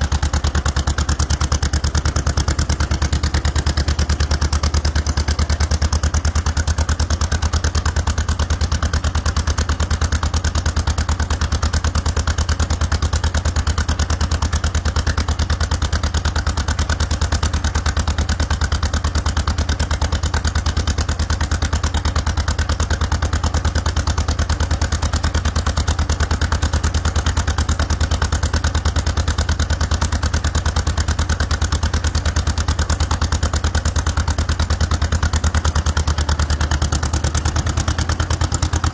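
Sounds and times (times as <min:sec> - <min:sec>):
tractor engine idling: 0:00.0 - 0:38.9.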